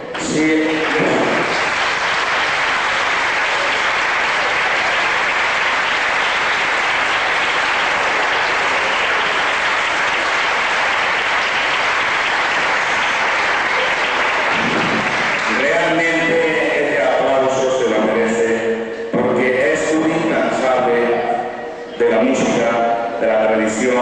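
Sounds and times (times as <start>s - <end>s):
crowd applauding: 0.0s - 17.6s.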